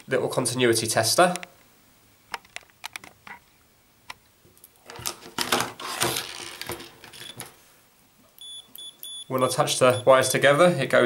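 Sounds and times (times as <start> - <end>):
clicking and rattling of tester leads: 2.3 - 3.4
high-pitched tester beep: 8.4 - 10.1.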